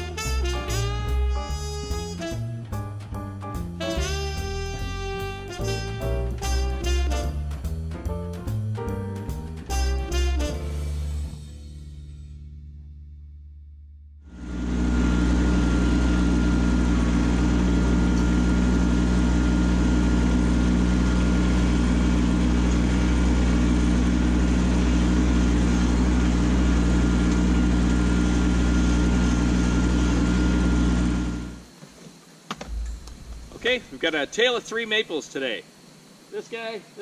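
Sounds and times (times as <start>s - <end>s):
tractor diesel engine running: 14.4s - 31.6s
thin steady whine: 27.9s - 37.0s.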